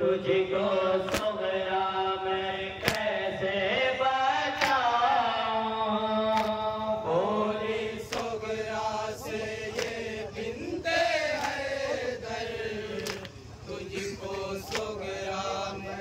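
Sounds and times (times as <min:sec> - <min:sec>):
men chanting through loudspeakers: 0:00.0 - 0:16.0
chest-beating slaps: 0:02.8 - 0:03.1, 0:04.6 - 0:04.8, 0:06.4 - 0:06.6, 0:13.0 - 0:13.4.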